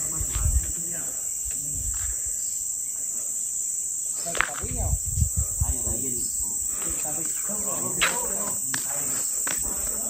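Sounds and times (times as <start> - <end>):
insect chorus drone: 0.0 - 10.0.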